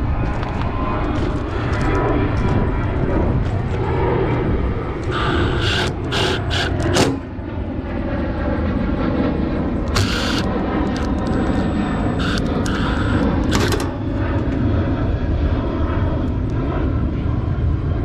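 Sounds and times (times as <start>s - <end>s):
steady low rumble: 0.0s - 18.0s
short sharp noise bursts: 5.1s - 7.2s.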